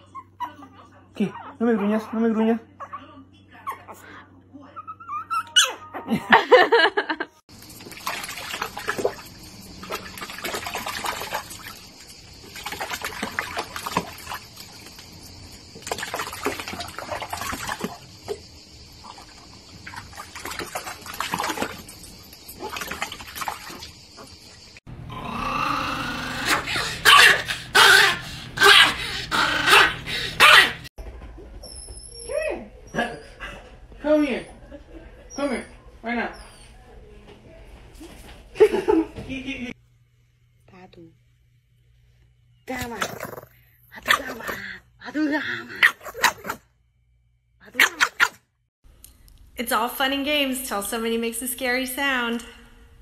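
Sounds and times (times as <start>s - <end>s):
dog vocalising: 0.0s - 6.1s, 25.1s - 30.9s
dog splashing in water: 7.6s - 18.4s, 19.0s - 24.5s.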